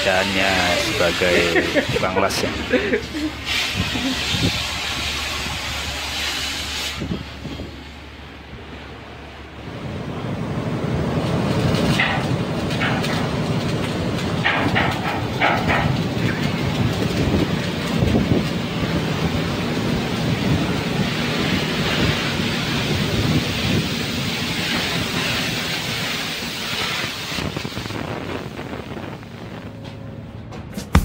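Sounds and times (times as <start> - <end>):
hiss: 0.2 - 8.2, 11.7 - 29.6
wind buffeting microphone: 3.6 - 5.8, 14.0 - 26.0, 26.6 - 29.8.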